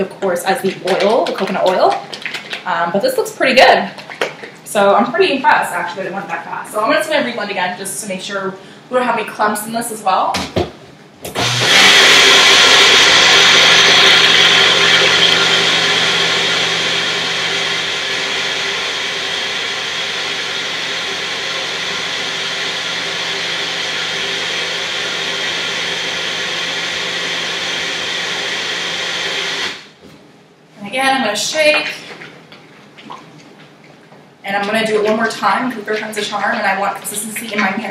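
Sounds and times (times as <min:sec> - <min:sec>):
blender motor whirring: 0:11.3 - 0:29.9.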